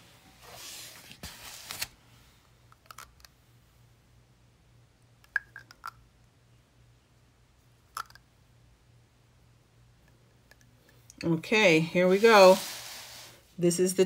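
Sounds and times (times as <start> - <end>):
small hard objects clicking: 8.0 - 8.2
notebook sliding on table: 12.2 - 13.4.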